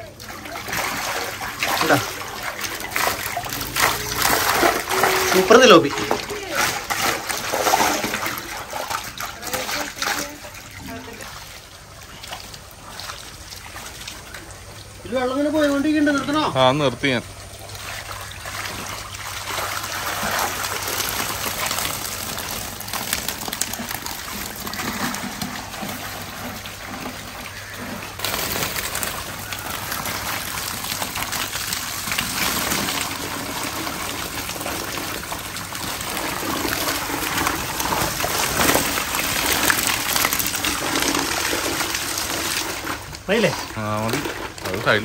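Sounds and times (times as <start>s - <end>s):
water running and splashing: 0.0s - 45.0s.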